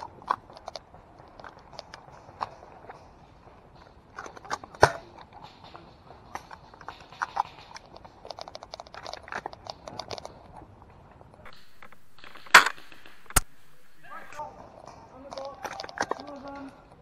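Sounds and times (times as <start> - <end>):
steady low hiss: 0.0 - 16.1
footsteps crunching on leaves: 11.5 - 14.4
twig snapping: 11.5 - 14.4.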